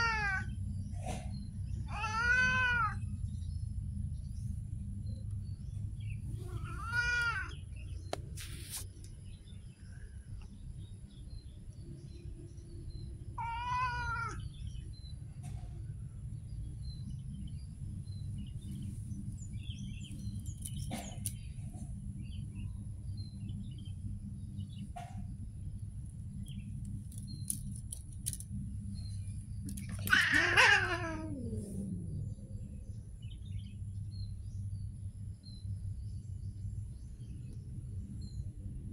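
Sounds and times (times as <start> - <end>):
cat meowing: 0.0 - 0.5, 1.9 - 3.0, 6.4 - 7.6, 13.4 - 14.4, 30.0 - 32.0
low background rumble: 0.0 - 38.9.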